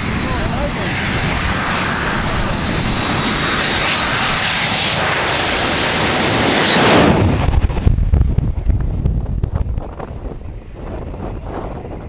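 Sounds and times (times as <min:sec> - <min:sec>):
high jet engine whine: 0:00.0 - 0:12.0
jet flying overhead: 0:00.0 - 0:12.0.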